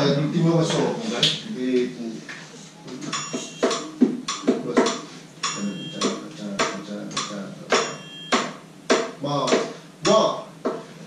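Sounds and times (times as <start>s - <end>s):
triangle struck: 3.1s - 9.2s
bongo hits: 3.1s - 10.9s.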